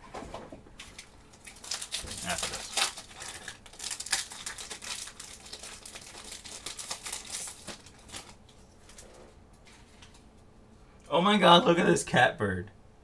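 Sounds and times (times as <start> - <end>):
foil wrapper crinkling: 0.8 - 9.0.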